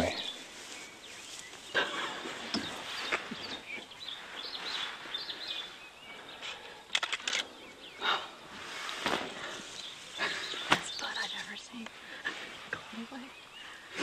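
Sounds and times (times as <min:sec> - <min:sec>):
birds chirping: 0:00.0 - 0:14.0
sharp clicks: 0:06.9 - 0:07.5.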